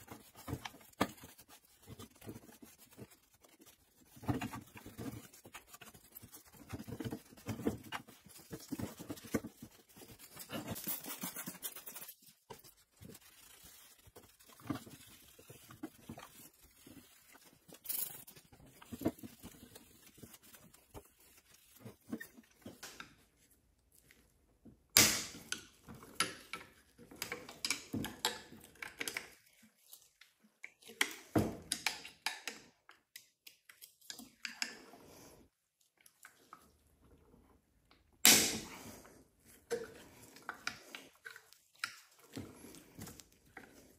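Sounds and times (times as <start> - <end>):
rag rubbing plastic: 0.0 - 17.3.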